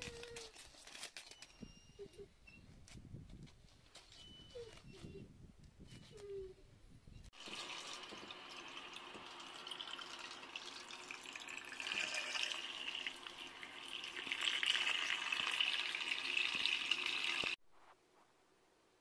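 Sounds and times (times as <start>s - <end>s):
tap water splashing onto potatoes: 7.4s - 17.6s.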